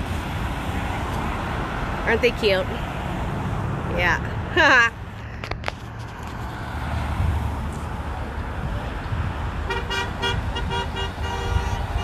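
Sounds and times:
road traffic rumble: 0.0 - 12.0
vehicle horn beeps: 9.7 - 12.0.

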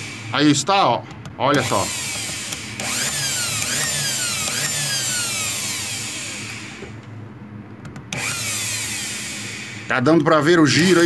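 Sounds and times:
electric planer motor whining: 1.6 - 7.0, 8.1 - 9.8.

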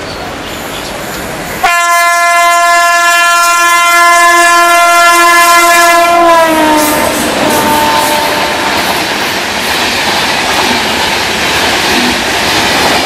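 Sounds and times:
locomotive air horn blast: 1.6 - 8.9.

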